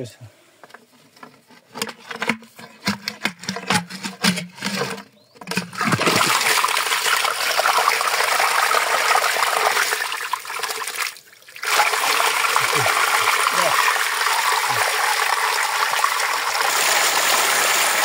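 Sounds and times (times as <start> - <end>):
water gushing: 5.5 - 18.0.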